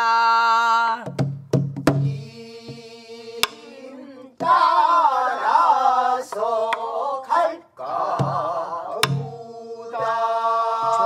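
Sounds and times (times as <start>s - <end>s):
group of voices singing: 0.0s - 1.0s, 2.0s - 11.0s
barrel drum strokes: 8.1s - 9.4s.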